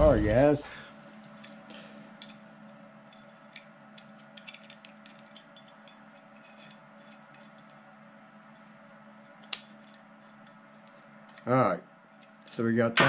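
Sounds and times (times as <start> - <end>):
background hum: 0.0 - 13.0
metal nut and bolt clicking: 3.1 - 7.8.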